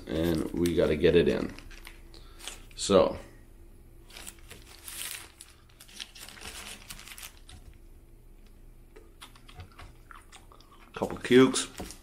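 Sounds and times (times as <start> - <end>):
wrapper paper crinkling: 0.1 - 2.6, 4.1 - 7.8.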